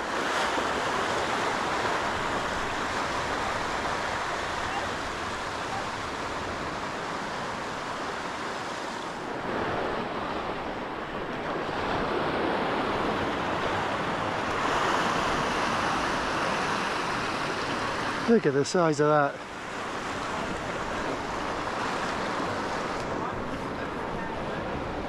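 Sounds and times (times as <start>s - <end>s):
waves breaking on rocks: 0.0s - 25.0s.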